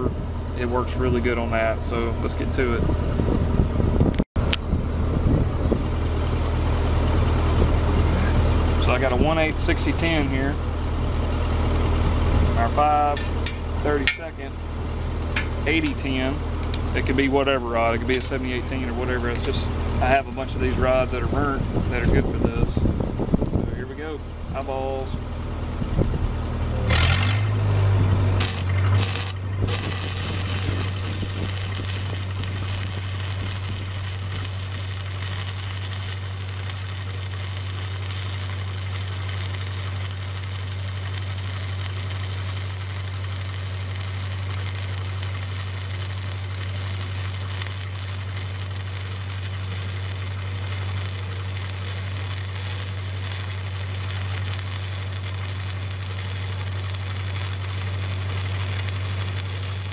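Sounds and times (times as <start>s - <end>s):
welder engine hum: 0.0s - 59.9s
welding arc crackling and hissing: 28.4s - 59.9s.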